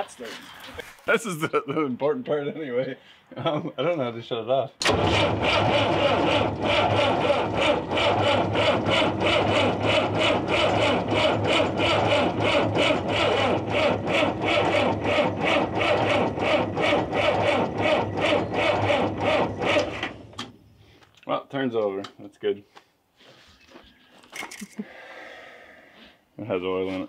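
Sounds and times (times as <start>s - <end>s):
diesel engine cranking: 4.8s - 20.6s.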